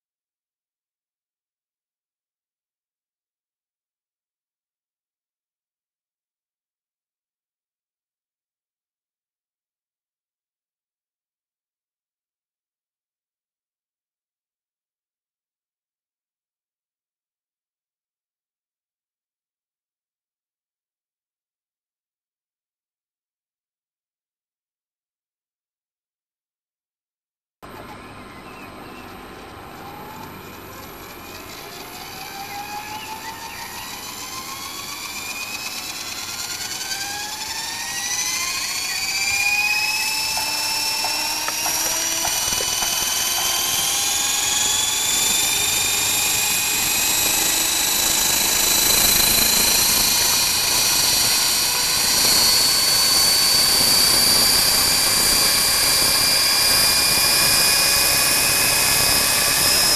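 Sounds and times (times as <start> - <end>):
model helicopter motor whine: 27.7 - 59.9.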